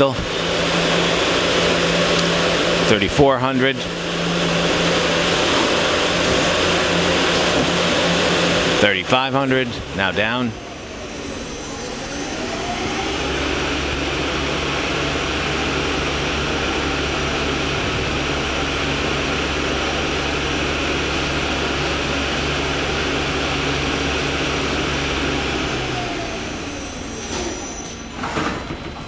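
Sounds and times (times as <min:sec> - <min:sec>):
lathe spindle whirring: 0:00.0 - 0:29.0.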